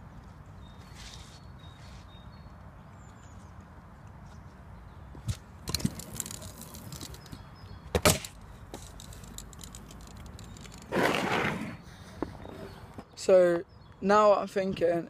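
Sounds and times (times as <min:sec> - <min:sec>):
scooter clattering on concrete: 0:05.2 - 0:13.1.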